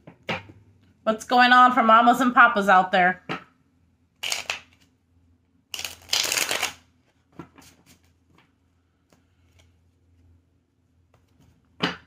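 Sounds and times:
cards being riffle-shuffled: 4.2 - 4.9, 5.7 - 8.5.

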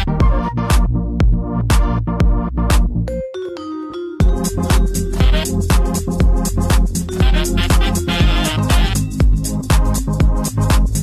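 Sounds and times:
kick drum beat: 0.0 - 3.0, 4.2 - 11.0
electronic dance music: 4.2 - 11.0.

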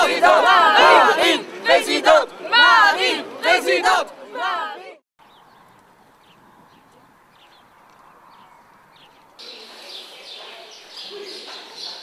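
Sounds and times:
birds chirping: 5.2 - 12.0.

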